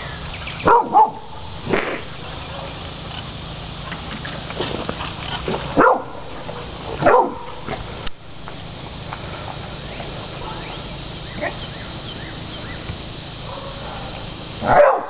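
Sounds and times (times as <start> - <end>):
dog barking: 0.6 - 1.4, 5.8 - 7.6, 13.4 - 15.0.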